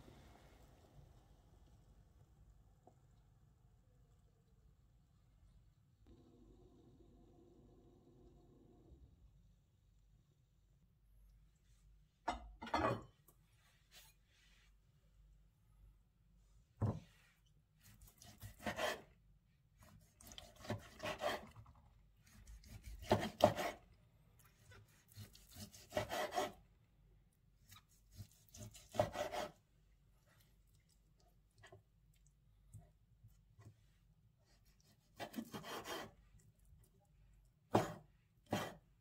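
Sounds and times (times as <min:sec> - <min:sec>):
knife scraping cutting board: 0:17.8 - 0:19.1, 0:19.8 - 0:21.6, 0:22.2 - 0:23.8, 0:24.6 - 0:26.6, 0:27.6 - 0:29.6, 0:34.5 - 0:36.2, 0:37.7 - 0:38.9.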